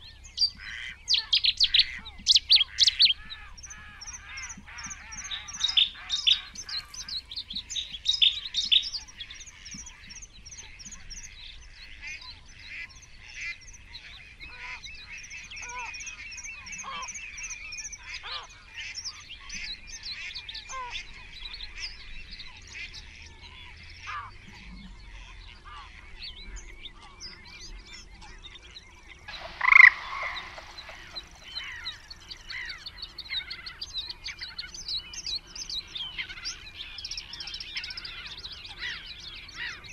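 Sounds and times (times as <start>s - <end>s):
birds singing and chirping: 0.0s - 39.9s
loud single bird call: 29.3s - 32.8s.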